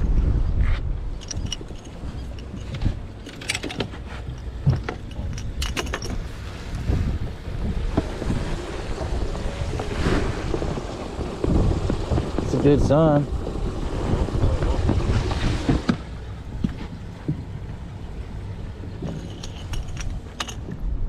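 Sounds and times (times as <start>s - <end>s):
wind rumbling on microphone: 0.0s - 21.0s
camera gear clicks and rattles: 19.0s - 20.7s.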